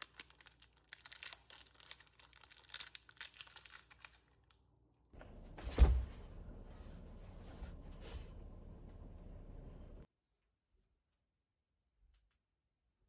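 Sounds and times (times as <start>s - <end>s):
plastic wrapper crinkling: 0.0s - 4.7s
heavy thump: 5.2s - 6.4s.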